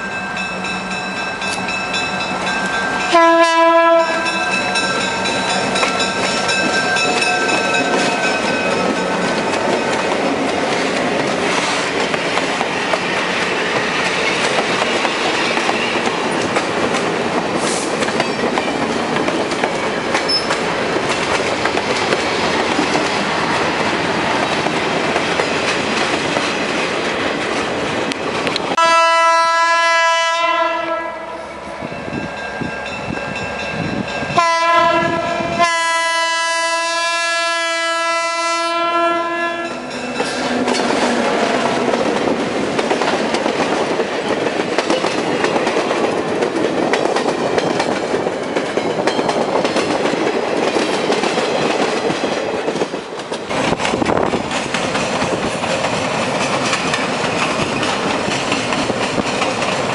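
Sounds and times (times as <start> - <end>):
train horn blasts: 3.0 - 4.8, 28.8 - 31.9, 34.3 - 40.0
train wheels clicking over rails: 4.1 - 28.8, 40.1 - 59.9.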